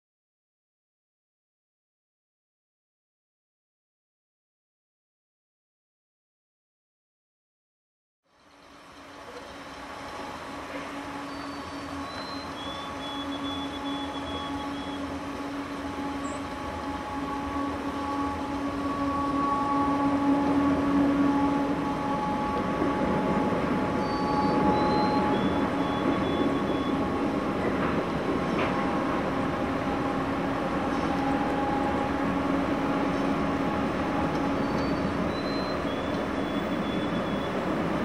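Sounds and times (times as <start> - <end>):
train wheels rumbling on rails: 8.5 - 38.0.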